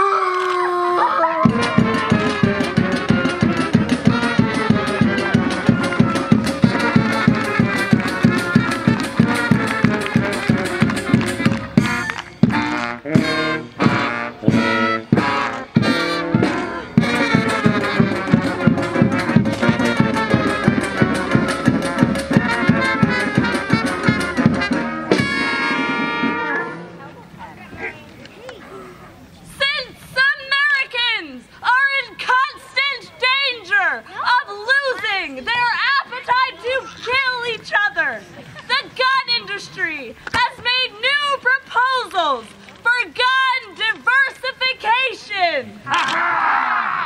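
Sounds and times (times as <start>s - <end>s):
lively brass band music: 1.3s - 27.9s.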